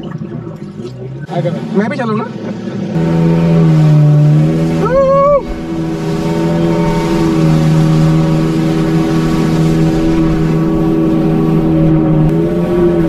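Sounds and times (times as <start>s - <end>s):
jet ski engine droning: 0.0s - 13.0s
water rushing: 0.0s - 13.0s
high whoop: 4.8s - 5.5s.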